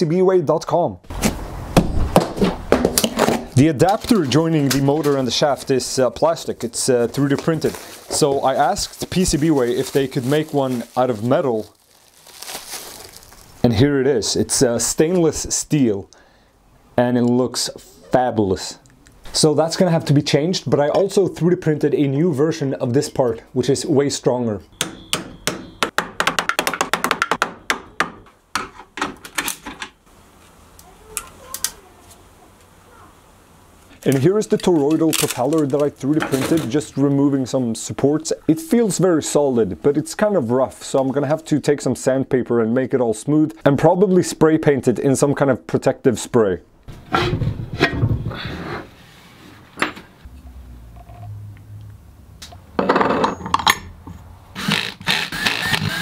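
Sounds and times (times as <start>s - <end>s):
hammer knocking on plastic: 24.8s - 29.2s
plastic and metal parts clattering: 28.6s - 30.0s, 33.9s - 36.9s.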